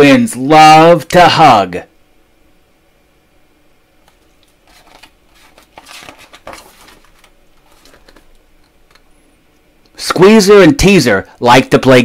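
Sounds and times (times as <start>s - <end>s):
paper page rustling: 4.4s - 8.4s.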